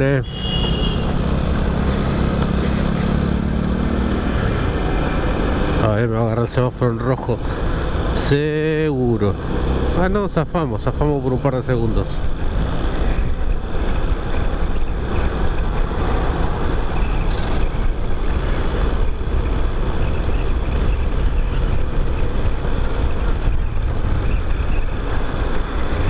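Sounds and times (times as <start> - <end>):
motorcycle engine rumble: 0.0 - 26.0
wind on microphone: 12.3 - 26.0.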